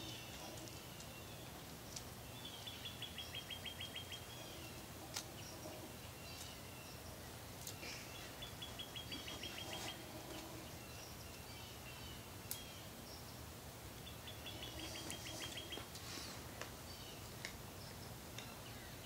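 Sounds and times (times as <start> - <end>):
steady background hiss: 0.0 - 19.0
faint bird calls: 7.6 - 12.6, 14.1 - 16.4.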